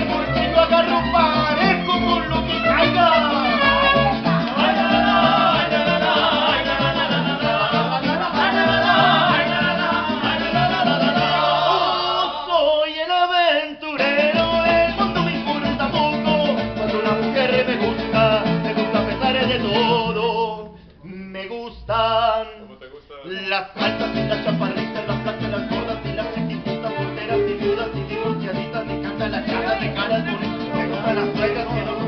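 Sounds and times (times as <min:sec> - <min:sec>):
strummed guitars: 0:00.0 - 0:12.4, 0:14.0 - 0:20.9, 0:23.8 - 0:32.0
bass line: 0:00.0 - 0:12.5, 0:23.8 - 0:32.0
band singing together: 0:00.0 - 0:22.5, 0:23.5 - 0:32.0.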